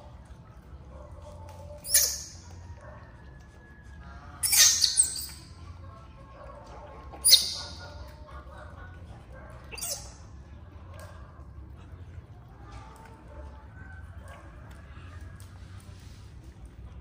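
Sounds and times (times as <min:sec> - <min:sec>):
baby monkey squealing: 0:01.8 - 0:02.4, 0:04.4 - 0:05.5, 0:07.2 - 0:08.0, 0:09.7 - 0:10.2.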